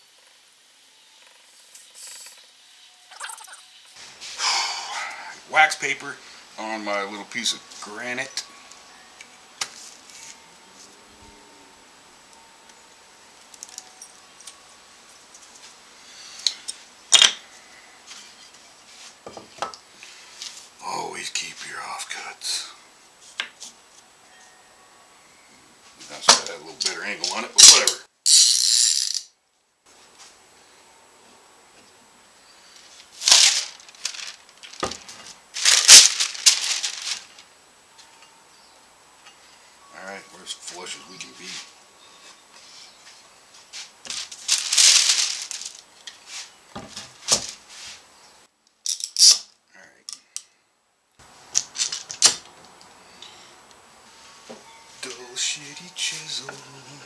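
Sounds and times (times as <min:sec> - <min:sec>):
wooden pieces clicking: 0:28.3 - 0:29.3
paper rustle: 0:32.8 - 0:37.5, 0:43.6 - 0:48.0.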